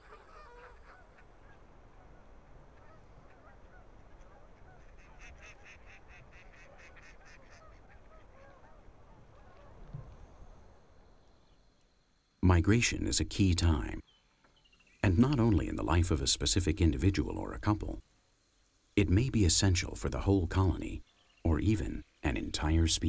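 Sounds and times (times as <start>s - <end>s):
geese honking: 0.0s - 11.6s.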